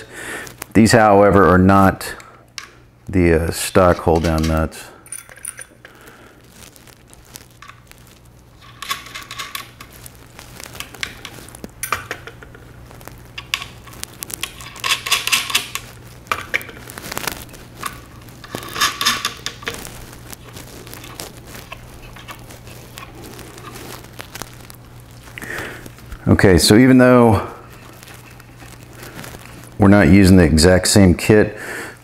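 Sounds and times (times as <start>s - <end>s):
small metal parts clinking: 3.8s - 5.9s, 8.6s - 9.9s, 10.7s - 12.5s, 13.4s - 19.9s.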